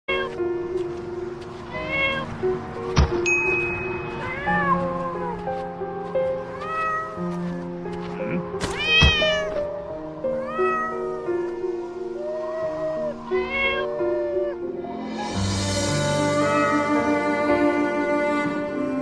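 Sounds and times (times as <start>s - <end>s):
music with cat meows melody: 0.1s - 19.0s
sustained backing notes: 9.5s - 19.0s.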